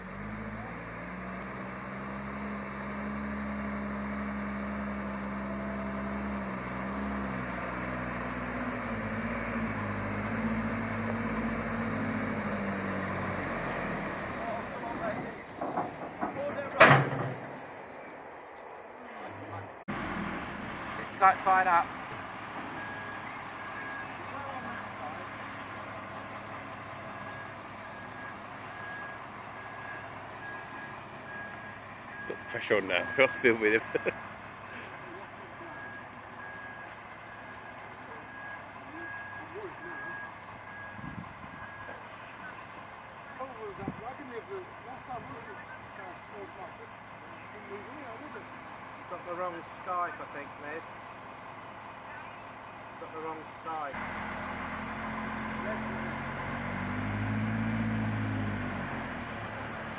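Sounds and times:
crane diesel engine running: 0.0s - 16.7s, 19.6s - 59.9s
warning alarm beeping: 27.2s - 34.2s.

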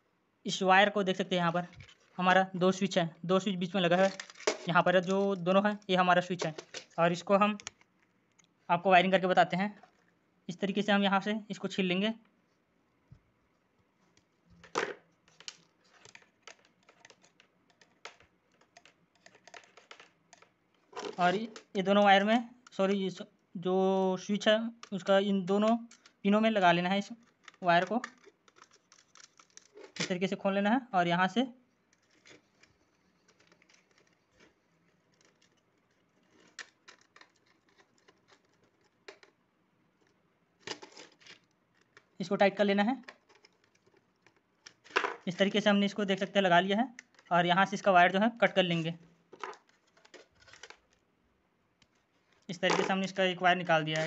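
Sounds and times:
wire stripping clicks and crackles: 27.0s - 30.2s, 31.8s - 39.4s.

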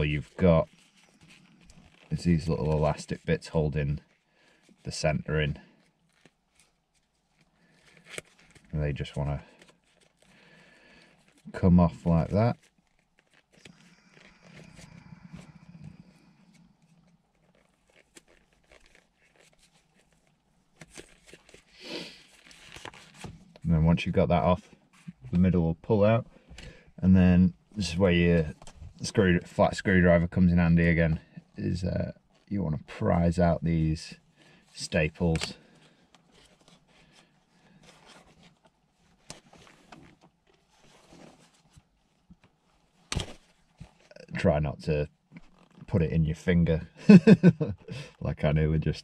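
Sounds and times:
fabric rustling: 16.4s - 23.5s.

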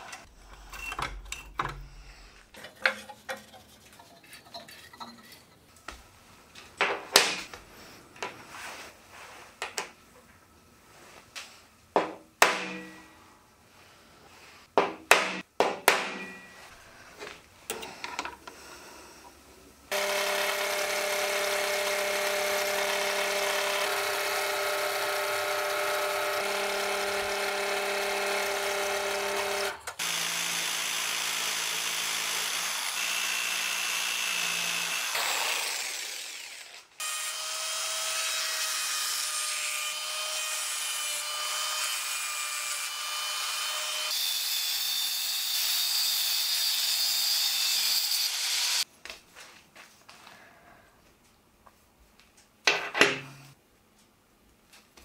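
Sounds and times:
drill press drilling steel: 19.9s - 36.7s
jigsaw cutting metal: 19.9s - 48.8s
angle grinder cutting steel: 19.9s - 48.9s.

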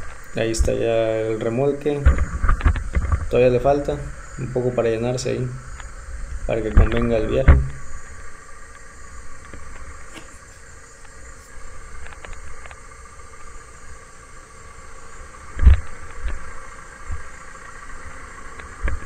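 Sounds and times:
low thumps: 0.0s - 8.4s
tractor and harvester humming: 0.0s - 19.0s.

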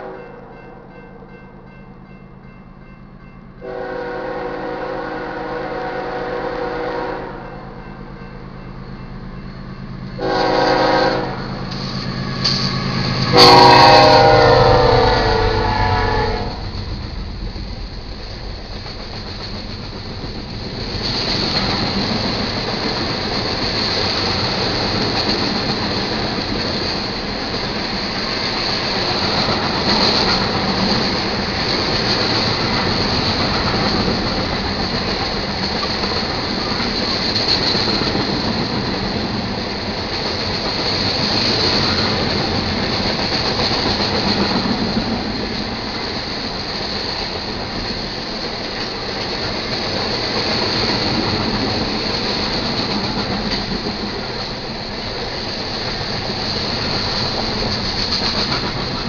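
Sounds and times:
train wheels clattering on rails: 7.8s - 59.0s
high steady wheel squeal: 9.6s - 16.6s.

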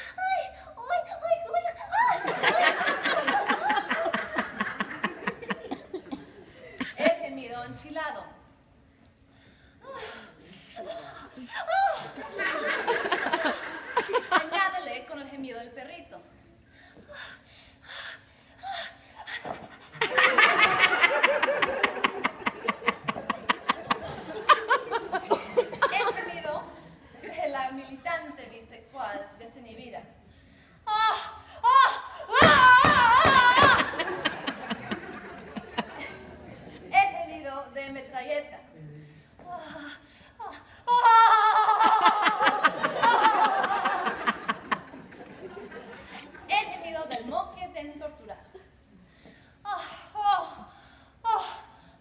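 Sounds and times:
audience laughter: 2.2s - 7.0s, 12.0s - 14.5s, 20.0s - 27.4s, 33.6s - 36.9s, 41.8s - 46.5s
woman panting moan: 9.7s - 12.4s.

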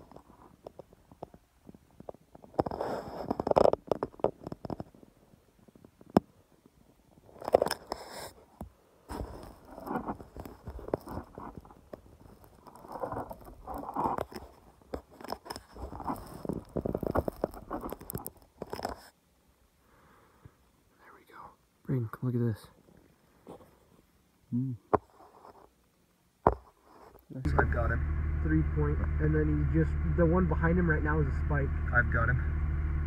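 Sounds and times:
phone handling rubbing and scraping: 2.4s - 4.9s, 9.1s - 19.2s.

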